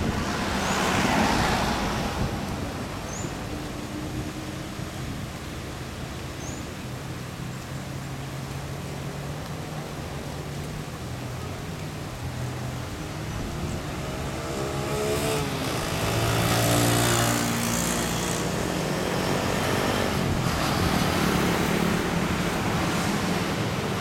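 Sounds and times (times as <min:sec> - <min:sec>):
passing vehicle engine: 0:00.0 - 0:05.0, 0:12.3 - 0:24.0
steady hum of traffic: 0:00.0 - 0:24.0.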